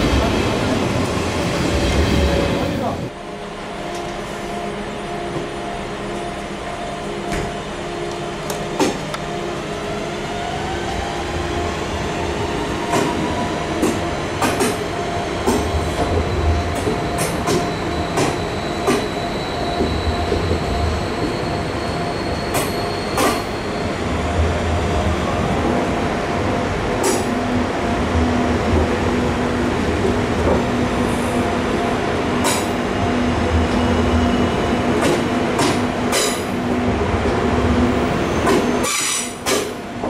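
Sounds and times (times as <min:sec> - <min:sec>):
train electric whine: 0:00.0 - 0:40.0
train low rumble: 0:00.0 - 0:40.0
high brake squeal: 0:21.0 - 0:24.0, 0:38.2 - 0:39.4.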